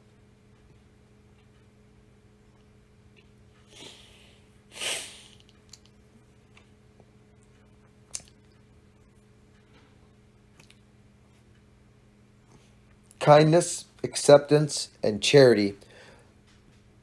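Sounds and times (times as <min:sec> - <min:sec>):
man sniffing: 0:03.7 - 0:05.5.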